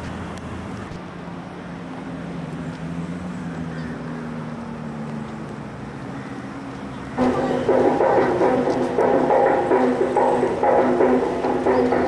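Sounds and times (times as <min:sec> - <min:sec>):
low droning hum: 0:07.2 - 0:12.0.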